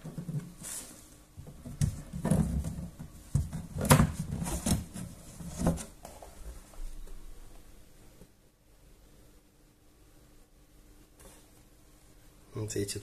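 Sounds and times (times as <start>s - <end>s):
boxes knocking and scraping: 1.4s - 6.0s.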